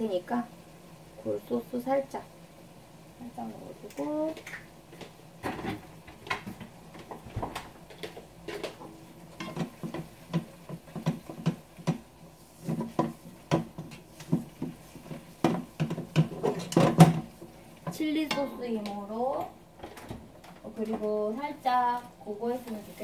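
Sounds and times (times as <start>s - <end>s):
spatula knocking and scraping pan: 7.8s - 19.6s.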